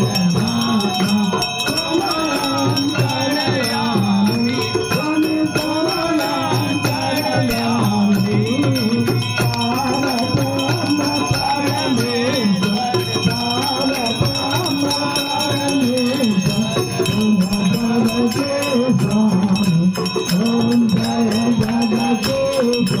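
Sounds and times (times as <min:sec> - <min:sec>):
dholak drum: 0:00.0 - 0:23.0
men singing devotional song: 0:00.0 - 0:23.0
ringing bells: 0:00.0 - 0:23.0.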